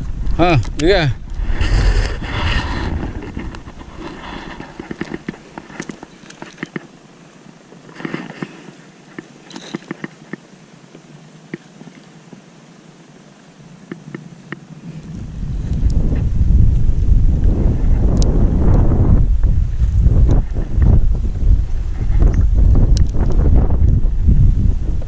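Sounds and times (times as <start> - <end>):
fishing gear clicking on kayak: 0.6 - 7.0, 7.7 - 12.1.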